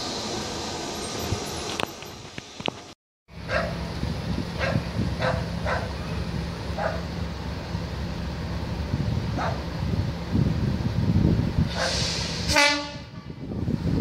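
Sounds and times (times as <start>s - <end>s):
dog barking: 3.5s - 3.7s, 4.6s - 5.9s, 6.8s - 7.1s, 9.4s - 9.6s.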